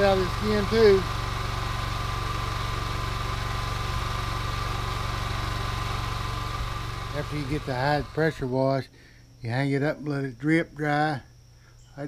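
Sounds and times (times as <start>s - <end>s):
pressure washer engine droning: 0.0s - 8.6s.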